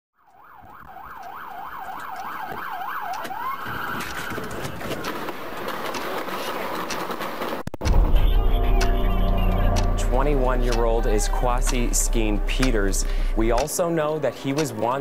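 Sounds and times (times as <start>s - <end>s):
police siren yelp: 0.2s - 5.1s, 8.1s - 13.1s
dense rushing noise: 7.2s - 14.0s
scattered clicks: 8.6s - 15.0s.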